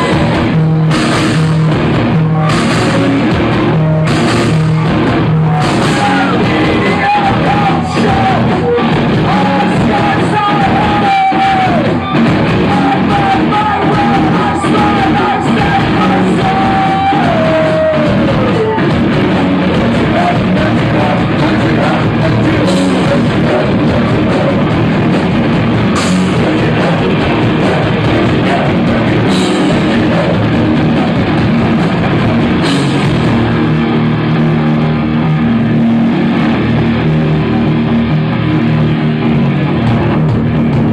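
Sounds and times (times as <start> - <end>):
live rock band playing: 0.0 - 40.9
person yelling singing: 5.4 - 24.9, 26.2 - 31.9.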